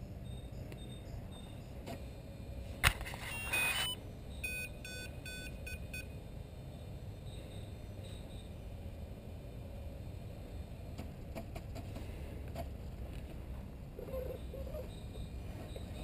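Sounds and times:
short electronic beeps: 3.2 - 6.1
speed controller start-up tones: 3.2 - 6.2.

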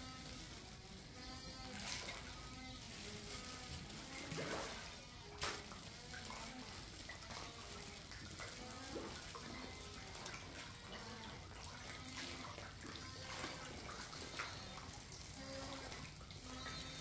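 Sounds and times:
fish splashing at water surface: 0.0 - 17.0.

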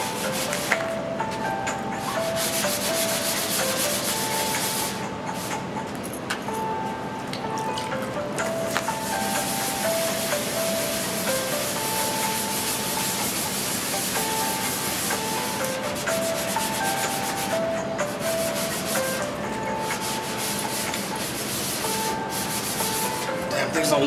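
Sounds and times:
sandpaper rasping on metal: 20.0 - 23.3.

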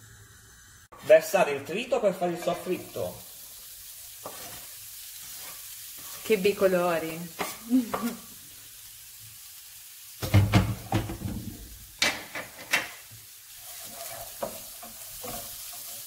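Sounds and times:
vegetables sizzling in oil: 0.0 - 16.0
wooden spatula scraping pan: 4.2 - 6.6, 13.6 - 16.0.

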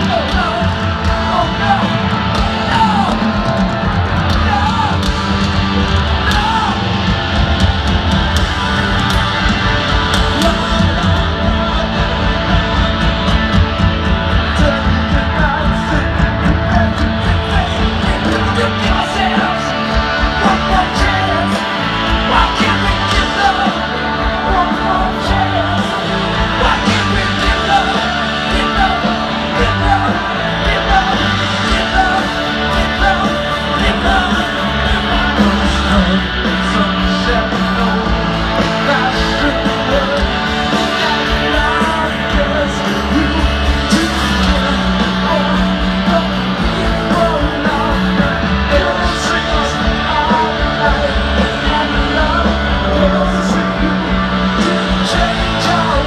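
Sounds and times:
bass guitar: 0.0 - 56.0
drums: 0.0 - 56.0
electric guitar: 0.0 - 56.0
person singing: 14.3 - 56.0.

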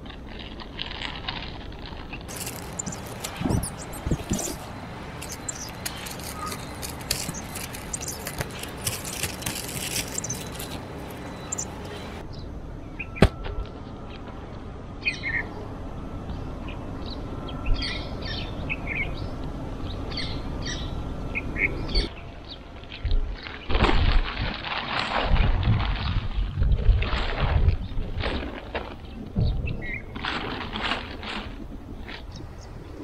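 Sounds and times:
camping gear rustling and clicking: 0.0 - 12.2
bird chirps: 2.3 - 13.2.

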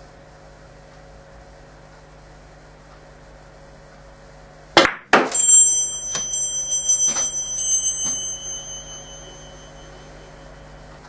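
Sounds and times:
cue striking billiard ball: 4.8 - 5.4
billiard balls knocking: 4.8 - 5.5
high metallic ringing: 5.2 - 11.0.

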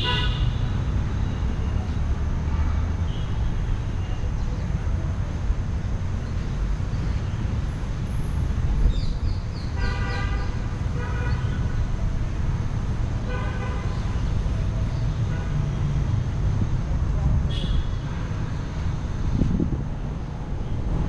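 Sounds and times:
car horns honking: 0.0 - 0.7, 17.5 - 18.1
road traffic rumble: 0.0 - 21.0.

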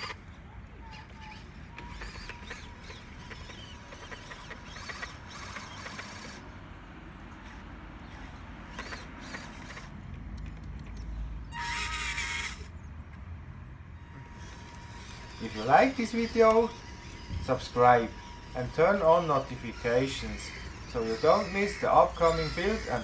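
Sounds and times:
toy motor and gears whining: 0.0 - 6.6, 7.4 - 10.0, 11.5 - 12.7, 14.0 - 23.0
rapid clicking of slipping shaft: 0.9 - 6.4, 7.4 - 11.1.

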